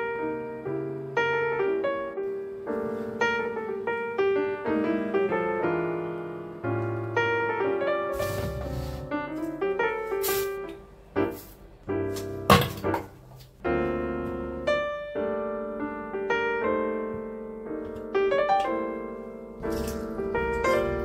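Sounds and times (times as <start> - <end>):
gentle solo piano melody: 0.0 - 21.0
short rustling noises: 8.2 - 11.6.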